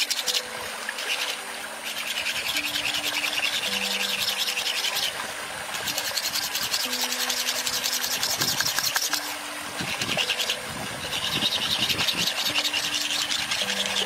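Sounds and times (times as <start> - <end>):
stone grinding on stone: 5.7 - 14.0.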